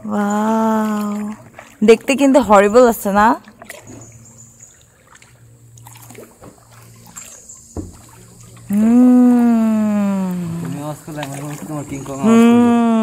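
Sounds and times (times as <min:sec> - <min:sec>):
paddle splashing water: 0:00.0 - 0:13.0
paddle knock: 0:07.7 - 0:08.8
person calling out: 0:08.7 - 0:10.8, 0:12.2 - 0:13.0.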